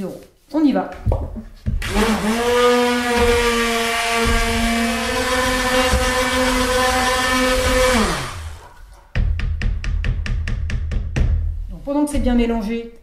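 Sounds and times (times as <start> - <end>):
immersion blender motor whine: 1.8 - 8.6.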